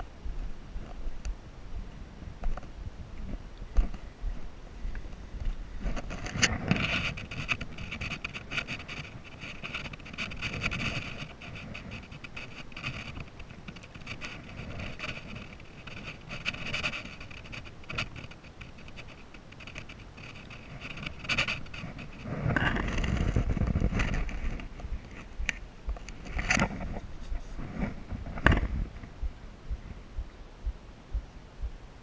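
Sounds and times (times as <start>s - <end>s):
hands rustling shoelaces: 5.5s - 29.3s.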